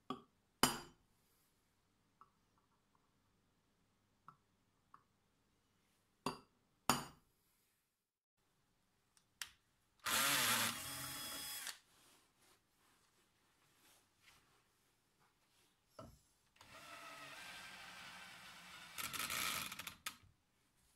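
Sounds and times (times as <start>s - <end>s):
power drill drilling into metal: 10.0s - 11.8s, 16.6s - 19.9s.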